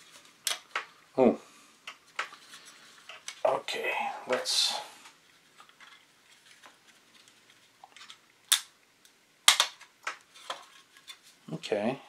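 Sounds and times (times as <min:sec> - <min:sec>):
sharp plastic snap: 0:08.5 - 0:10.2.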